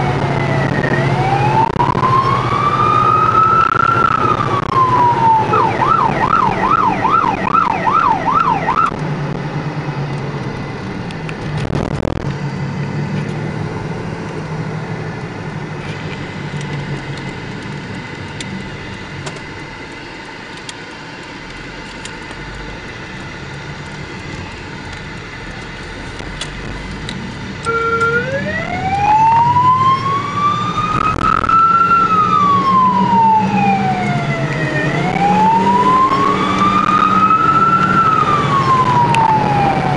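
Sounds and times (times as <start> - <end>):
police siren wailing and yelping: 0.0 - 9.0, 27.6 - 39.9
car engine and road noise: 0.0 - 39.9.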